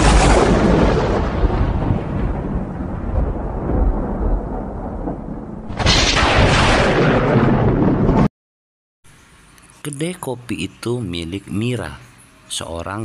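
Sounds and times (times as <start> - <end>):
loud thunderclap: 0.0 - 8.3
rolling thunder: 0.0 - 8.3.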